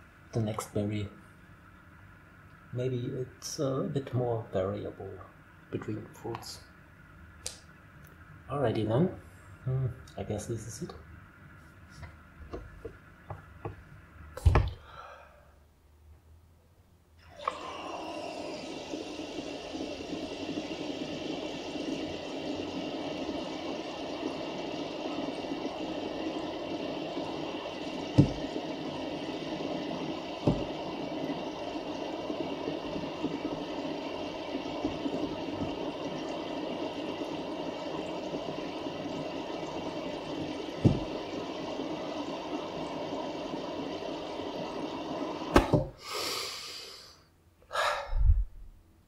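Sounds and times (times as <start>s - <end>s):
breathy intake of air: 14.8s - 15.6s, 17.2s - 33.8s, 45.4s - 48.5s
water bubbling and gurgling: 17.2s - 45.7s
dull thumps: 28.2s - 28.4s.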